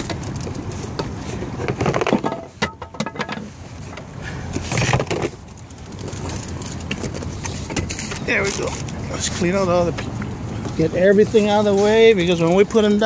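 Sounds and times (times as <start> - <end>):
knocks and clatter of gear: 0.0 - 9.0.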